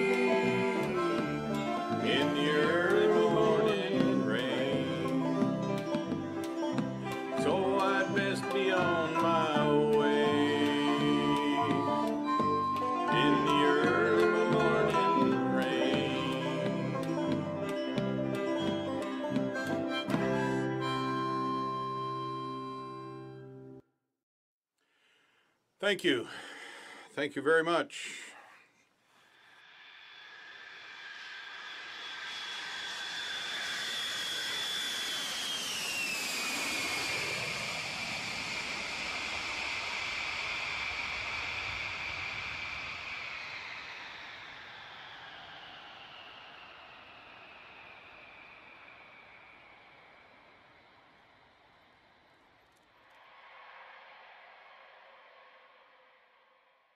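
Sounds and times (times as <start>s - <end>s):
person singing: 0.0s - 6.1s, 7.1s - 19.2s
high jet whine: 0.0s - 23.3s, 29.6s - 52.8s
acoustic guitar strumming: 0.0s - 23.8s
jet airliner taking off: 29.6s - 56.2s.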